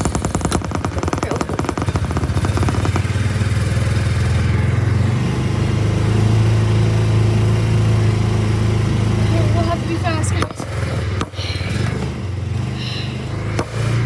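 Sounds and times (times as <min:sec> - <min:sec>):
vehicle engine from inside cab: 0:00.0 - 0:14.0.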